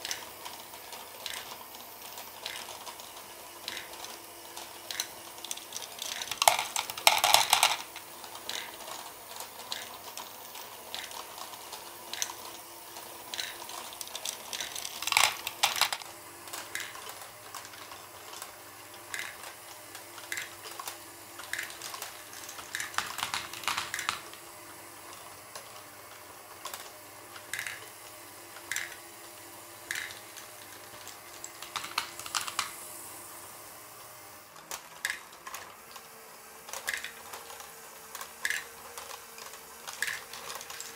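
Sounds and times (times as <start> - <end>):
motor humming faintly: 0.0 - 40.9
plastic balls clattering: 5.8 - 8.9, 13.3 - 19.6, 20.2 - 24.4, 29.9 - 32.7, 36.7 - 40.9.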